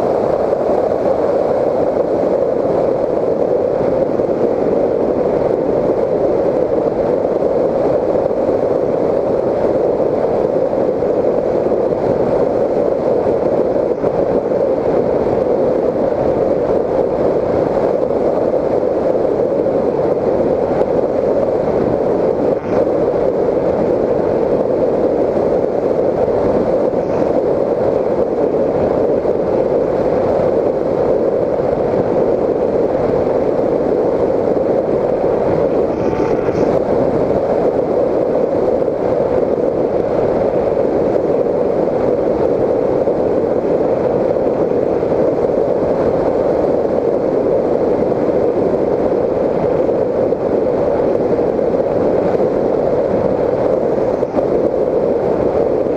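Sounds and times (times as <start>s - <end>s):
rushing airflow: 0.0s - 55.9s
electric motor and propeller: 20.6s - 30.4s, 34.5s - 37.7s.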